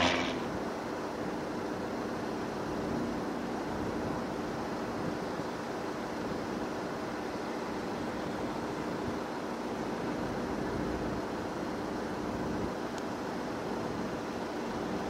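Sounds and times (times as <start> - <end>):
distant turboprop plane drone: 0.0 - 15.0.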